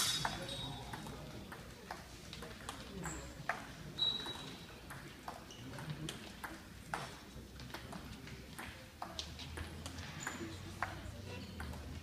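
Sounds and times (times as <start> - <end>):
table tennis ball ticking: 11.6 - 12.0.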